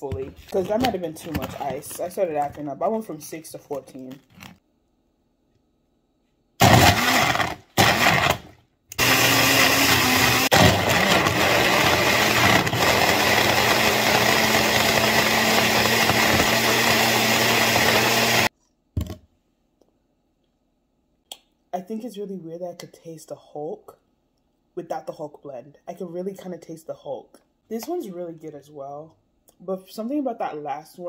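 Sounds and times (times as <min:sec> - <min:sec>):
blender crushing ice: 0:06.6 - 0:18.5.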